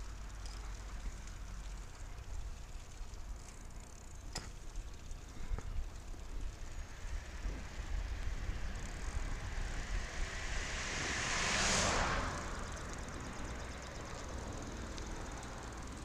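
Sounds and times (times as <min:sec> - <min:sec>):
wind rumble on microphone: 0:05.5 - 0:16.0
car passing: 0:06.2 - 0:16.0.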